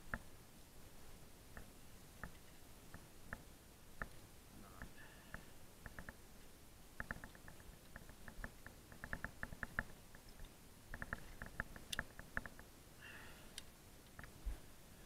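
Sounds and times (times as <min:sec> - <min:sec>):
climbing gear clicking: 0:07.0 - 0:12.7.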